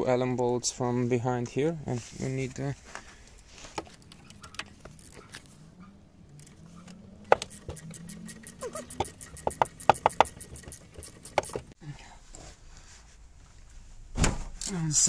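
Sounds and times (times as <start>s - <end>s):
ratchet clicking: 4.0s - 5.4s, 7.3s - 11.8s.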